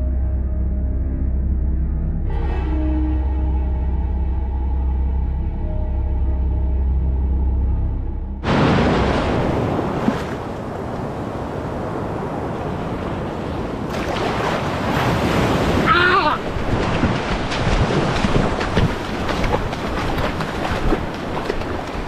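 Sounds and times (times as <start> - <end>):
ocean surf washing: 8.4 - 22.0
wind on microphone: 8.6 - 22.0.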